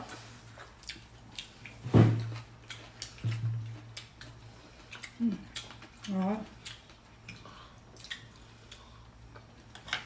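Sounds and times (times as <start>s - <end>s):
chewing: 0.0s - 10.0s.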